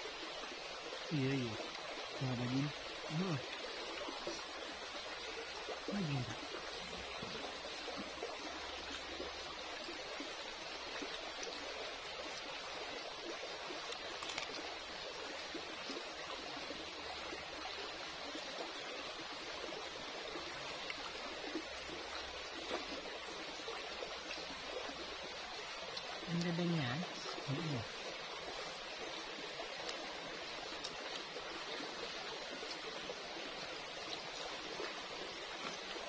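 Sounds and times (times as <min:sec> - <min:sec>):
water babbling over stones: 0:00.0 - 0:36.0.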